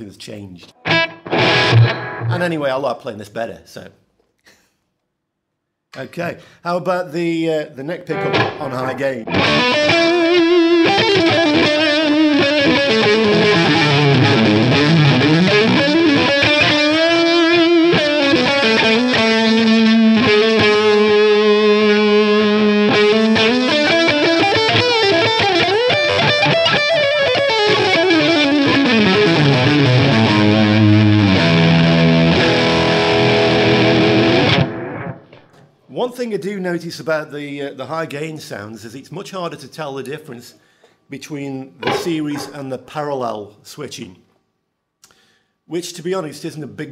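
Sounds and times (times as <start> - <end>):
distorted electric guitar lead: 0.8 - 2.4, 8.1 - 35.5.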